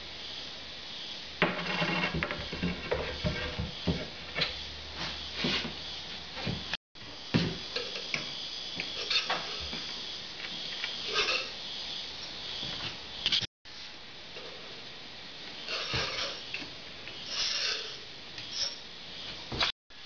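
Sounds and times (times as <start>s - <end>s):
metal scraper scraping a board: 1.4s - 3.6s.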